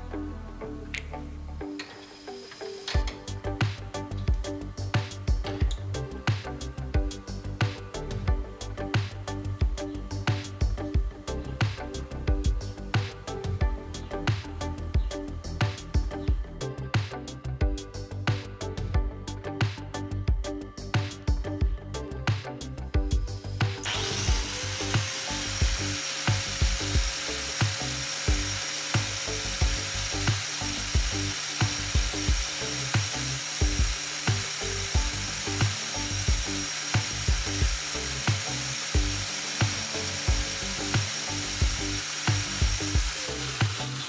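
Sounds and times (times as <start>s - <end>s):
music with steady beat: 0.8s - 44.0s
angle grinder whine: 23.7s - 44.0s.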